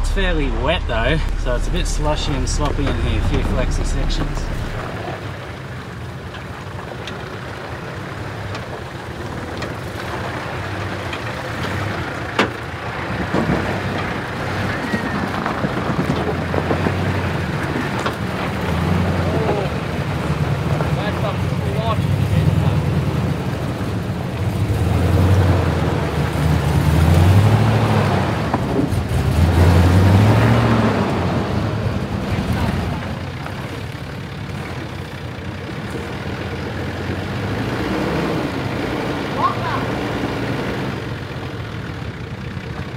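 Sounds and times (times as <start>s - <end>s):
diesel engine running at low revs: 0.0s - 42.9s.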